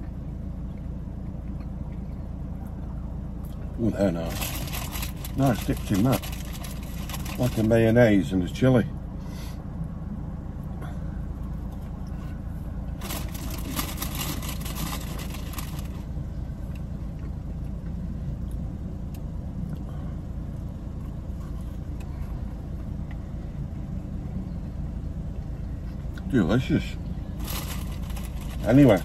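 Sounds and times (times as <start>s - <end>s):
car cabin low hum: 0.0s - 9.0s, 9.8s - 29.0s
paper packaging rustling: 4.3s - 7.7s, 13.0s - 16.0s, 27.4s - 29.0s.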